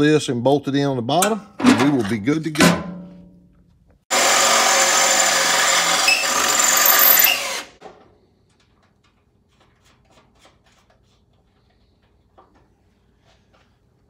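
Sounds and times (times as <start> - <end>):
electric drill drilling: 4.1 - 7.8.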